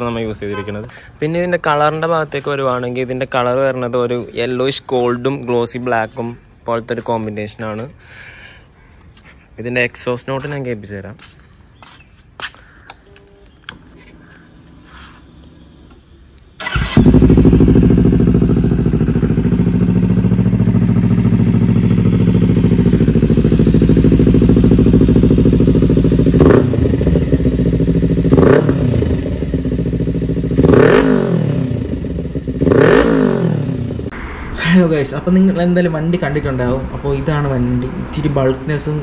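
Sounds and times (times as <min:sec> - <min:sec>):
motorcycle engine idling and revving: 0:13.8 - 0:34.2.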